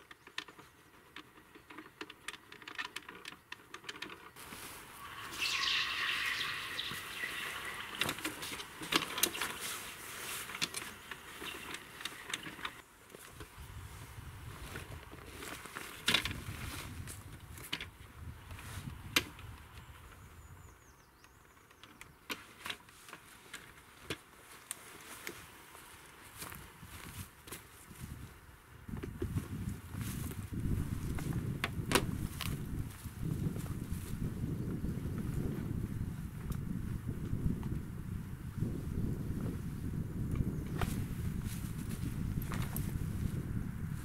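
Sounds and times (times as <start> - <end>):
rustling movement: 0.5 - 17.7, 40.7 - 44.0.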